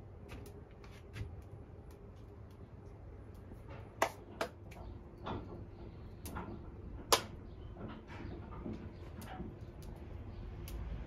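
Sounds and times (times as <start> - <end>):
wood fire crackling and popping: 0.0 - 11.0.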